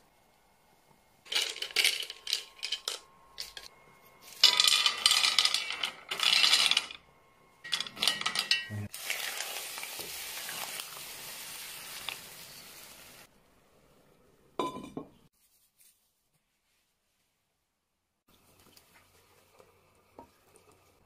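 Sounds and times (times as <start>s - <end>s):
pebbles clattering into a pot: 1.3s - 7.0s, 7.6s - 12.8s
sizzling hiss: 8.9s - 13.3s.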